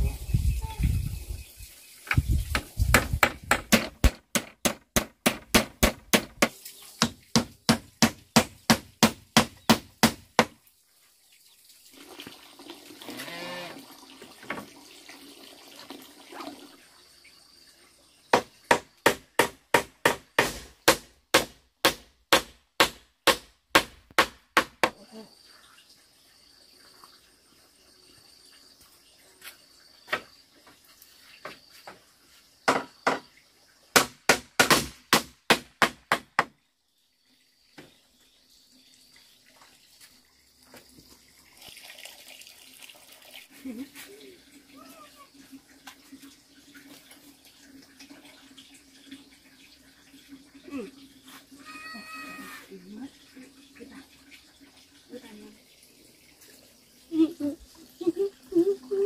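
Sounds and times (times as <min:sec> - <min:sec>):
hand tool striking bamboo: 0:02.1 - 0:10.6, 0:18.4 - 0:25.0, 0:34.0 - 0:36.5.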